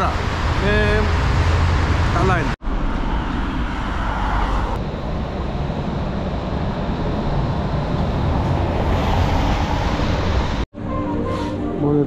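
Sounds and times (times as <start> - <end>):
tram running on rails: 0.0 - 10.6
city traffic noise: 0.0 - 12.0.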